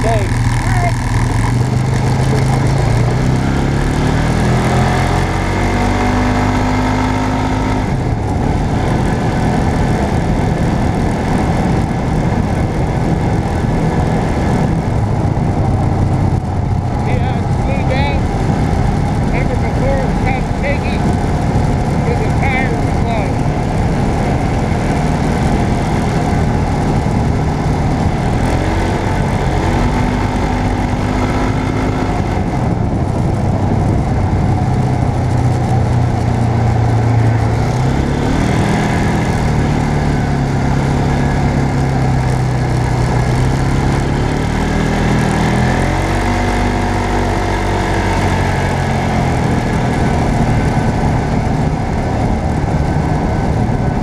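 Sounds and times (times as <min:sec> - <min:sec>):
vehicle engine running: 0:00.0 - 0:54.0
wind and road noise: 0:00.0 - 0:54.0.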